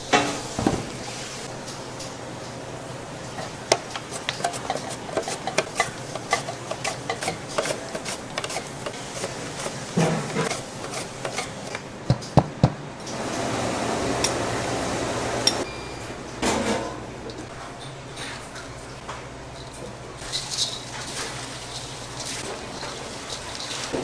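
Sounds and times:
utensils clicking and tapping: 3.4s - 9.3s.

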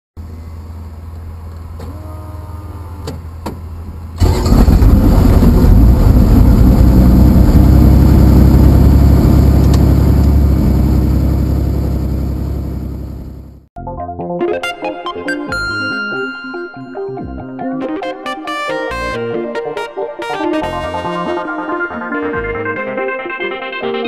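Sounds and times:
piston engine starting and running: 4.2s - 13.7s.

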